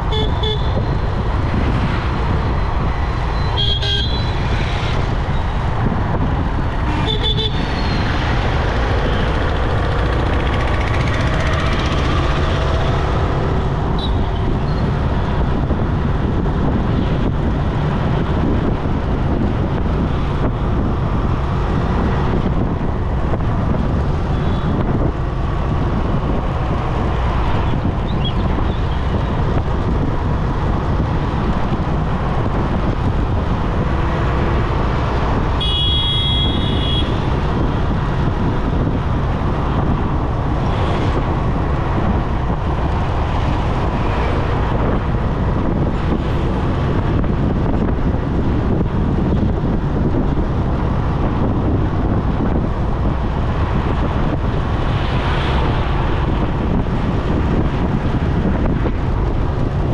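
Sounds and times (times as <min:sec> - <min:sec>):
road traffic: 0:00.0 - 0:59.9
wind and motorcycle engine rumble: 0:00.0 - 0:59.9.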